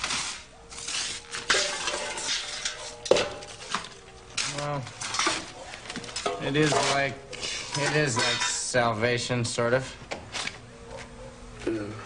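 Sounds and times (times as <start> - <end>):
kitchen utensils and crockery clattering: 0.0 - 8.9.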